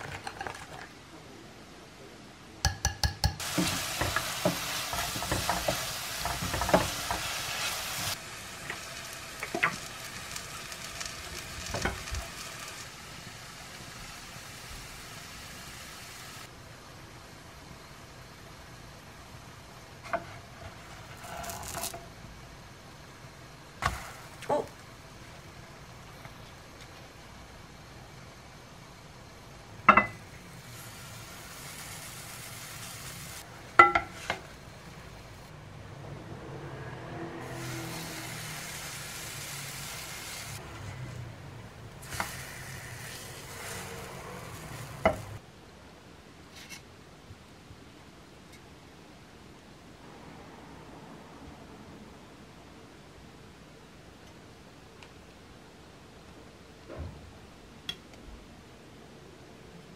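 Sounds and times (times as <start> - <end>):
batter sizzling in a frying pan: 3.4 - 16.5, 20.1 - 22.0, 23.8 - 24.5, 29.9 - 35.3, 37.4 - 40.6, 42.0 - 45.4.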